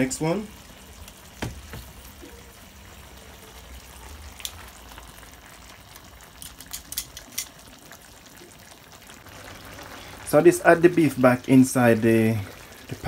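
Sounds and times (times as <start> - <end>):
sauce simmering with faint sizzle: 0.0 - 13.0
metal tongs clinking on pan: 6.4 - 7.6.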